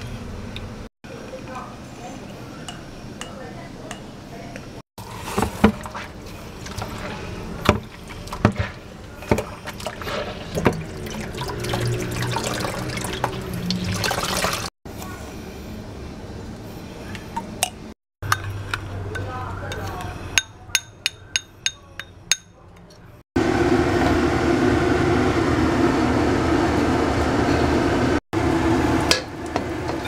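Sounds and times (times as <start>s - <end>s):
liquid trickling into a bowl: 9.6s - 14.7s.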